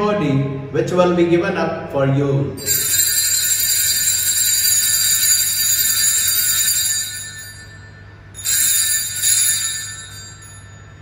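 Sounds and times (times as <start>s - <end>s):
altar bells ringing: 2.6s - 11.0s.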